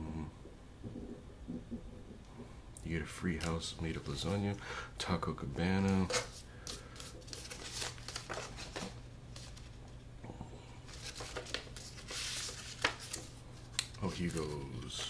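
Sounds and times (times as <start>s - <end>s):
paper rustling: 5.9s - 9.8s, 10.9s - 15.0s.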